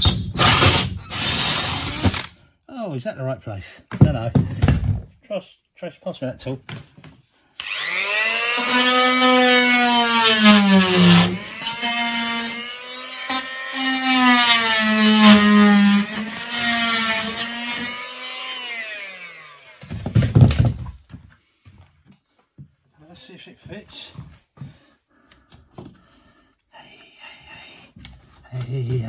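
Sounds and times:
oscillating multi-tool cutting plasterboard: 0.0 - 2.3, 7.6 - 20.0.

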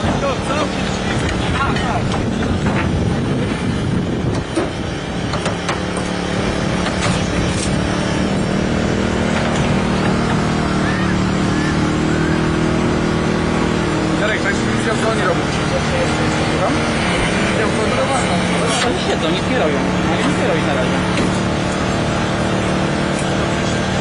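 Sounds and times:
hydraulic power unit engine running: 0.0 - 24.0.

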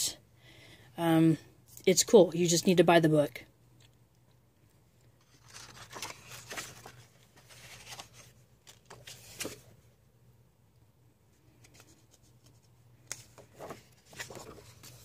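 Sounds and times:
paper pages rustling: 5.2 - 9.8, 11.4 - 15.0.

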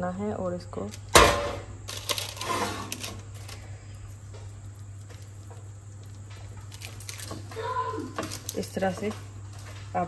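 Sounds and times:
parchment paper rustling: 1.9 - 9.9.

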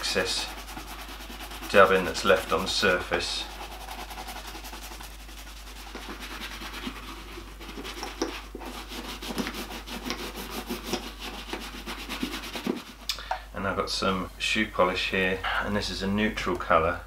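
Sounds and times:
shoe brush buffing leather boot: 0.0 - 13.0.

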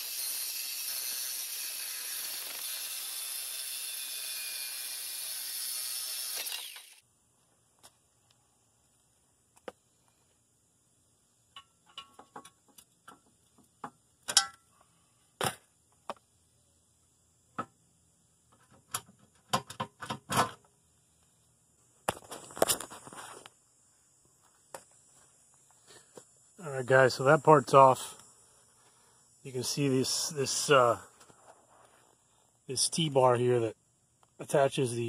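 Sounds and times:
car-body parts and tools clicking: 11.5 - 14.7.

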